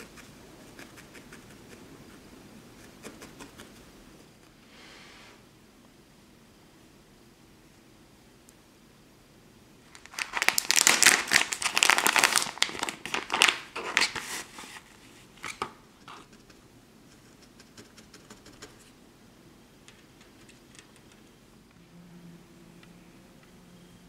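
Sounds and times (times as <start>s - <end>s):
plastic packet crinkling: 9.8s - 15.7s.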